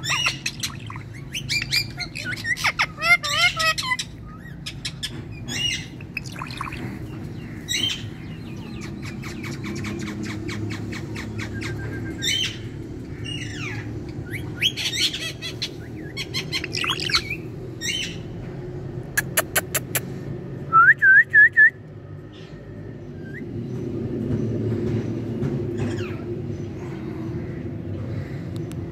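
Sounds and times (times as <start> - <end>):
parakeet squawks and chirps: 0.0 - 18.2
steady low hum: 0.0 - 28.9.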